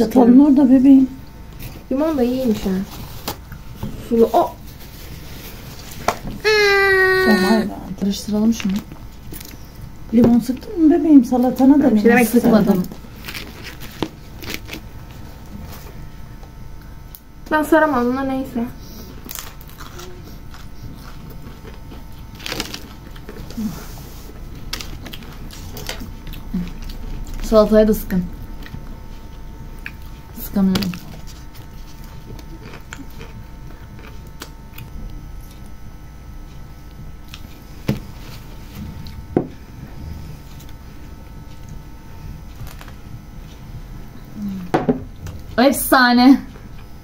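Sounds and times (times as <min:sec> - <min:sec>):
people chewing: 0:01.5 - 0:17.2, 0:18.8 - 0:45.6
quiet chewing: 0:19.2 - 0:27.5, 0:28.4 - 0:39.3.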